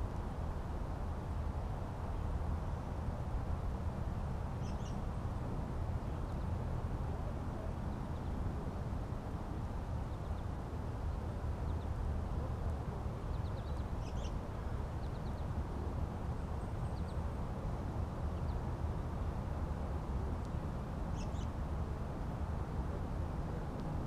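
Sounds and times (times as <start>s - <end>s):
low outdoor rumble: 0.0s - 24.0s
small birds chirping: 4.6s - 5.2s, 13.2s - 15.6s, 16.4s - 17.5s, 20.5s - 21.6s.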